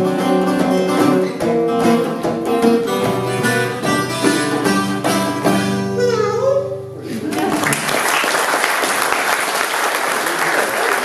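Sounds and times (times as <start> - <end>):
strummed acoustic guitar: 0.0 - 7.2
harmonica: 2.1 - 7.2
kazoo notes: 2.9 - 7.1.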